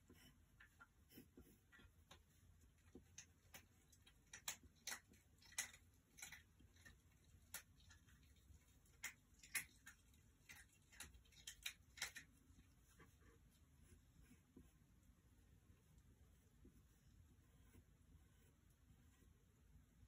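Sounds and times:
pencil scratching on paper: 0:16.2 - 0:19.5.

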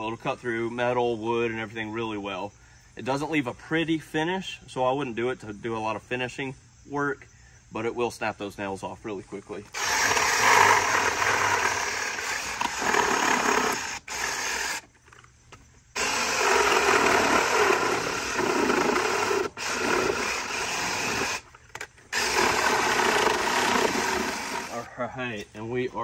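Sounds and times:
reciprocating saw cutting nails: 0:09.7 - 0:14.9, 0:16.0 - 0:24.8.

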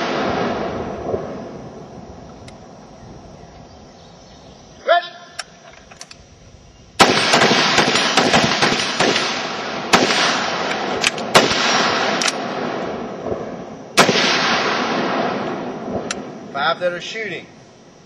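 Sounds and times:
loud single gunshots: 0:00.0 - 0:01.5, 0:07.0 - 0:16.5
rifles firing rapidly: 0:07.0 - 0:12.5, 0:14.0 - 0:15.0.

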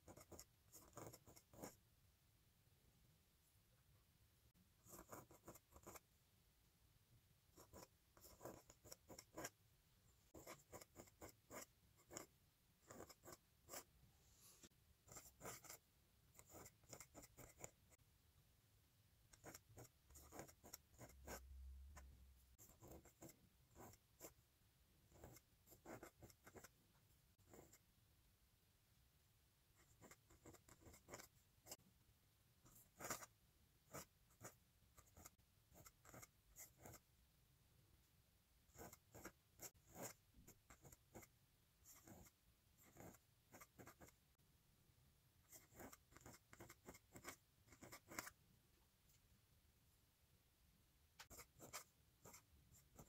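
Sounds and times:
pen nib scratching on paper: 0:00.0 - 0:01.8, 0:04.8 - 0:06.1, 0:07.5 - 0:09.6, 0:10.3 - 0:18.0, 0:19.3 - 0:24.4, 0:25.1 - 0:26.8, 0:27.4 - 0:27.8, 0:29.8 - 0:31.8, 0:32.7 - 0:37.1, 0:38.7 - 0:44.2, 0:45.5 - 0:48.4, 0:51.2 - 0:53.0.

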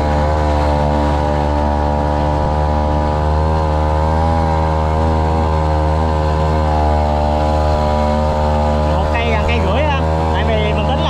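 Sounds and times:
small boat engine running: 0:00.0 - 0:11.0.

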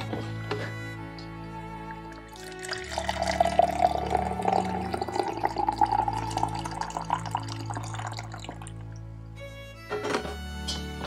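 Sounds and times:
coffee splashing into mug: 0:01.9 - 0:08.9.

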